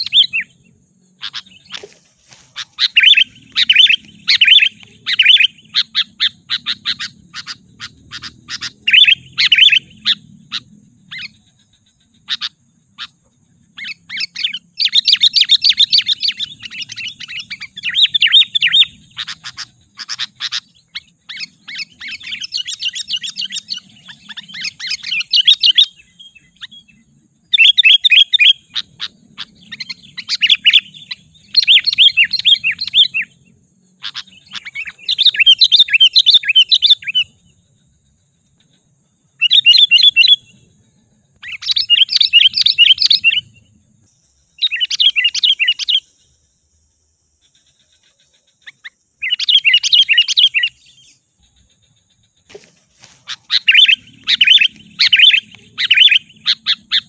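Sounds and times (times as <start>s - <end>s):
bird chattering calls: 0.0s - 26.9s, 27.5s - 33.4s, 34.0s - 37.4s, 39.4s - 40.6s, 41.4s - 43.6s, 44.6s - 46.1s, 47.4s - 57.0s.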